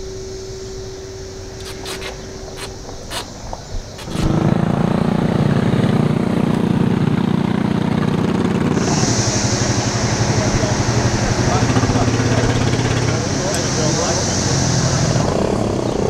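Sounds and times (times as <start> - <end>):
small engines running past: 0.0 - 16.0
steady hum: 0.0 - 16.0
sharp clicks: 1.6 - 4.4.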